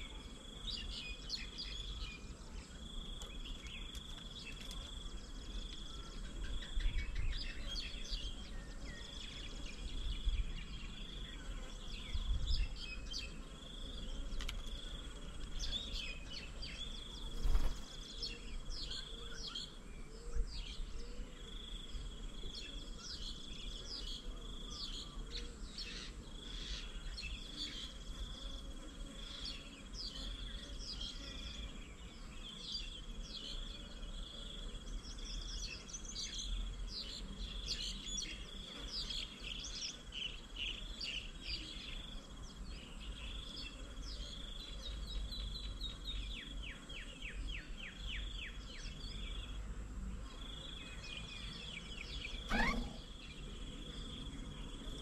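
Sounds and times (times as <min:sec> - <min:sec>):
small birds chirping: 0:00.0 - 0:55.0
insect trilling: 0:52.4 - 0:53.2.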